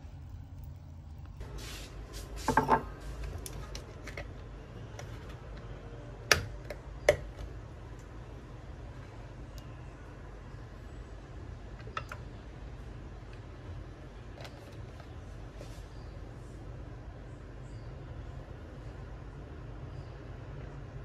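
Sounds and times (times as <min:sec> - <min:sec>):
steady low hum: 0:00.0 - 0:21.0
items set on wooden counter: 0:02.1 - 0:05.6.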